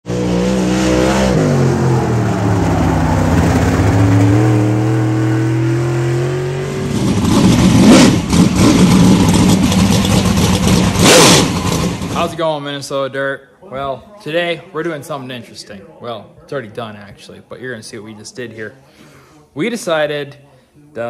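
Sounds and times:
race car engine accelerating: 0:00.0 - 0:12.2
rough engine sound with sharp hits: 0:06.8 - 0:12.3.

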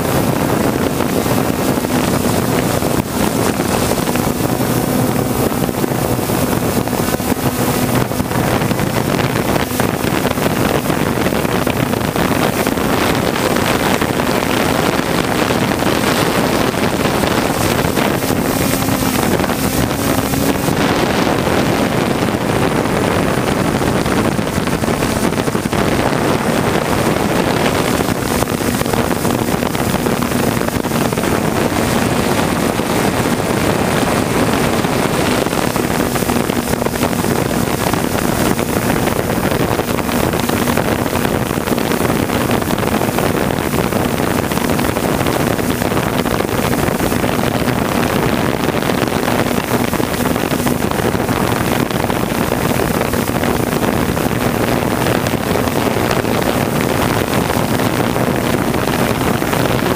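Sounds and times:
drone propellers whirring: 0:00.0 - 0:38.6
wind noise on microphone: 0:00.0 - 0:59.9.

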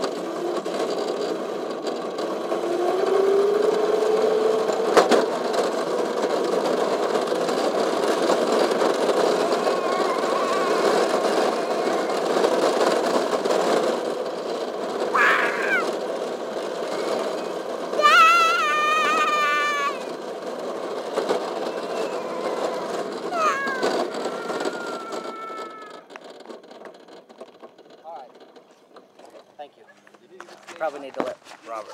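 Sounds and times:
go-kart motor rushing: 0:00.0 - 0:31.9
high wavering cry: 0:09.3 - 0:12.7, 0:15.1 - 0:16.0, 0:16.9 - 0:20.2, 0:21.4 - 0:26.0.

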